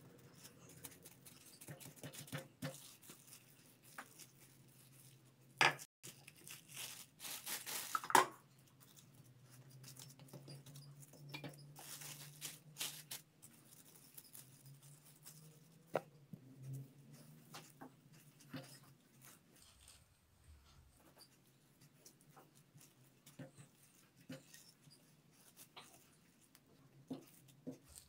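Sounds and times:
cling film crinkling: 0:06.0 - 0:10.8, 0:11.8 - 0:16.0.

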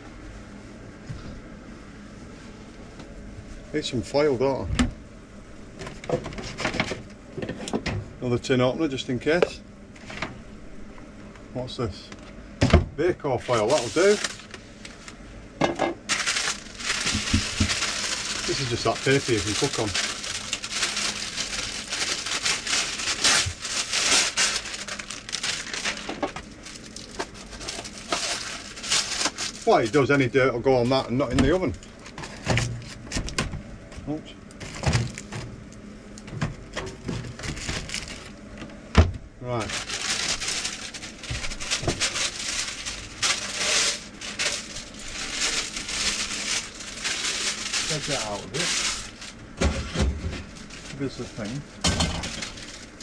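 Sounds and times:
baking paper crinkling: 0:13.4 - 0:15.2, 0:16.1 - 0:30.1, 0:37.2 - 0:38.5, 0:39.6 - 0:53.0.

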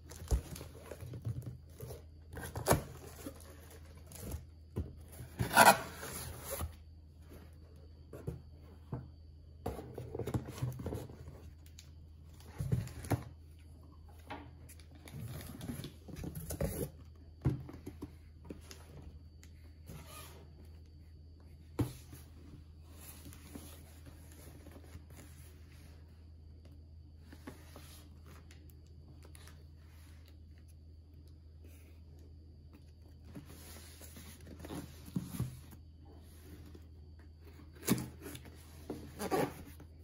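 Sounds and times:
cardboard boxes scraping and rustling: 0:00.1 - 0:06.8.

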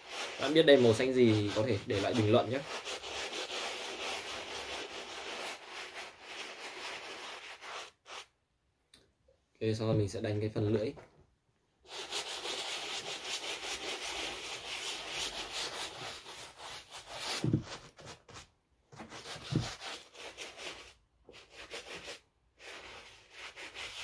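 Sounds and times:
brush scrubbing sneaker: 0:00.0 - 0:08.3, 0:11.9 - 0:17.8, 0:19.2 - 0:24.0
dull knock: 0:17.4 - 0:17.7.

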